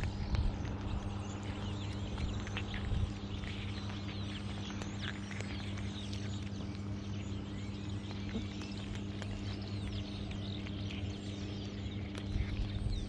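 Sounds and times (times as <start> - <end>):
birds chirping: 0.0 - 13.0
cats crunching dry kibble: 0.0 - 13.0
low hum: 0.0 - 13.0.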